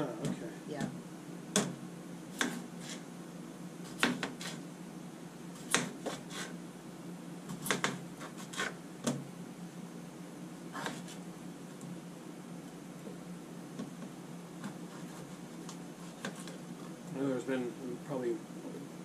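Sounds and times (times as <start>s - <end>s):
low steady hum: 0.0s - 19.0s
knife chopping on plastic board: 0.2s - 1.8s, 2.4s - 3.0s, 3.9s - 4.6s, 5.6s - 6.5s, 7.5s - 9.2s.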